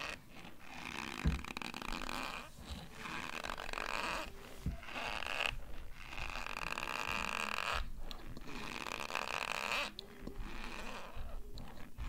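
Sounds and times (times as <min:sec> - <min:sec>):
chewing dry cornstarch: 0:07.1 - 0:12.0.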